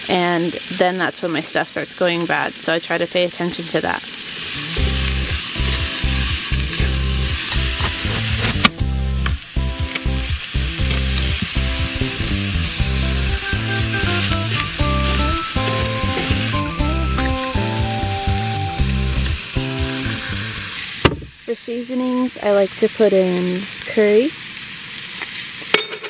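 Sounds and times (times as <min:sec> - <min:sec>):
vegetables sizzling in a skillet: 0:00.0 - 0:25.8
low steady musical notes: 0:04.6 - 0:20.5.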